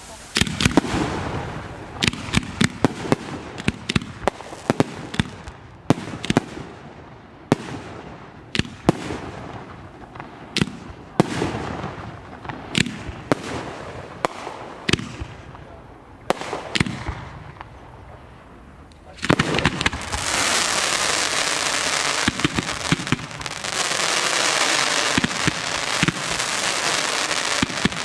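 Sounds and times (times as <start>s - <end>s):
fireworks bursting with sharp bangs: 0.0s - 28.0s.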